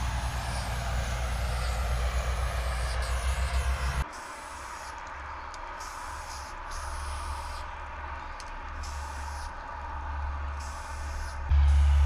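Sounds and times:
spray paint can hissing: 5.8 - 7.6, 8.8 - 9.5, 10.6 - 11.4
low rumble: 7.8 - 12.0.

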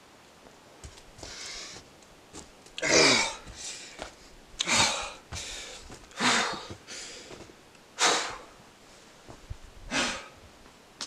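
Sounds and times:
person breathing hard: 1.2 - 1.8, 3.0 - 8.6, 9.9 - 10.4.

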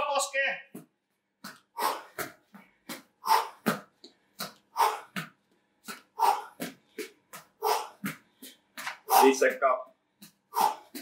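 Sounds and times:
person breathing hard: 1.7 - 3.8, 4.4 - 5.3, 5.9 - 9.4, 10.2 - 11.0.

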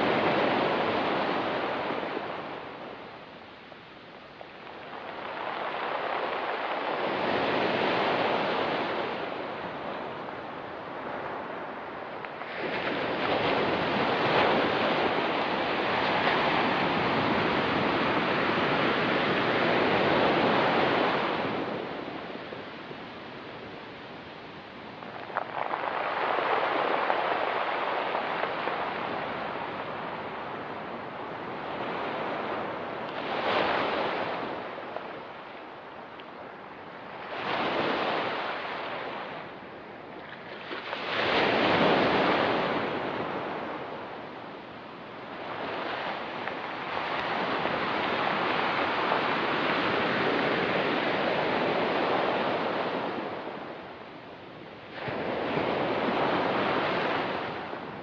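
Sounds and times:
surf breaking on pebbly beach: 25.0 - 35.5.

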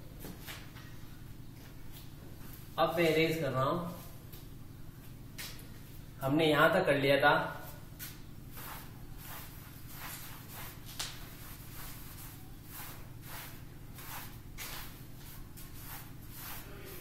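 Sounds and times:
cloth duster wiping a chalkboard: 7.6 - 17.0.

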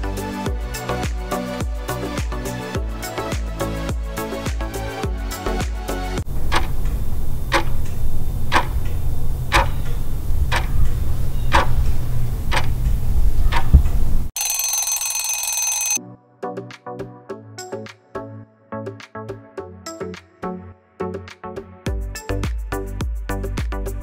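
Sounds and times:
clock ticking: 6.5 - 8.9
alarm ringing: 14.4 - 16.0.

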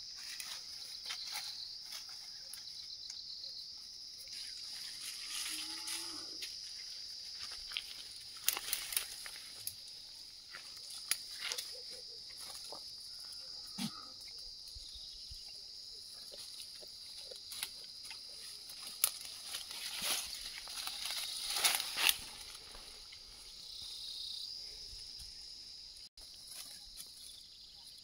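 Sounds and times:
insects chirring: 0.0 - 28.0
goat tearing leaves and stems: 7.9 - 9.8, 17.2 - 22.6.

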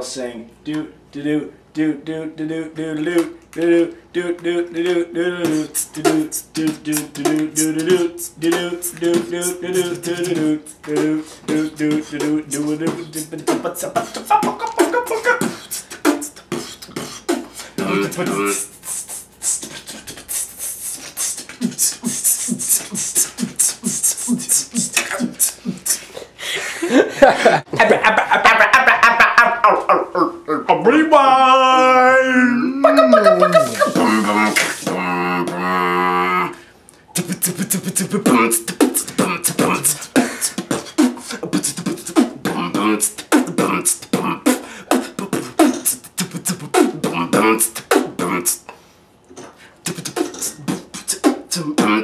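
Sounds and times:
beatboxing kick-drum sounds: 4.4 - 26.2, 33.1 - 35.8, 37.1 - 48.7, 49.8 - 52.0
beatboxing hi-hat and snare: 4.4 - 26.3, 33.1 - 35.6, 37.1 - 48.7, 49.3 - 52.0.

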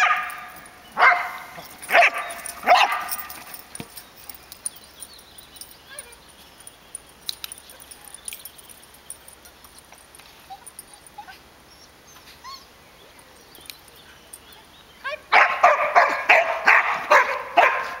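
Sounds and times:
dog barking: 0.0 - 3.3, 15.3 - 18.0.

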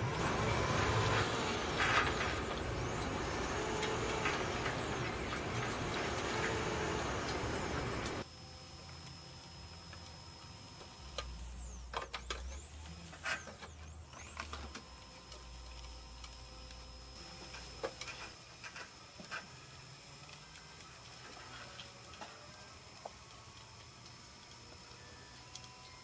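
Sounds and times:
low motor hum: 0.0 - 8.3
rising and falling whines: 0.0 - 8.3.

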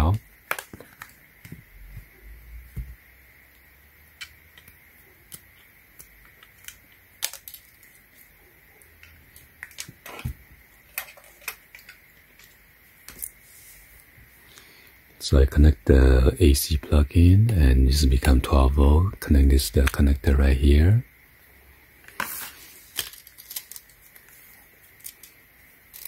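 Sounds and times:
plastic parts clicking and tapping: 0.4 - 2.1, 4.2 - 8.0, 9.0 - 13.3.

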